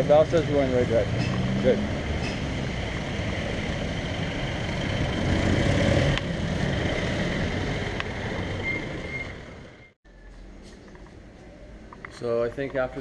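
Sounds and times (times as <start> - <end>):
traffic passing close by: 0.0 - 9.8.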